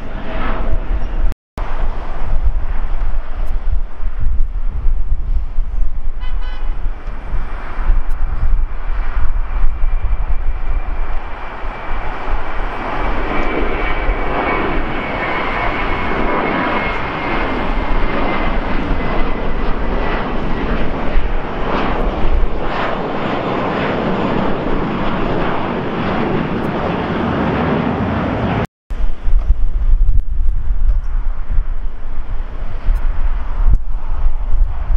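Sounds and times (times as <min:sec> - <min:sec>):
high jet whine: 0:00.0 - 0:34.9
jet airliner roar: 0:00.0 - 0:34.9.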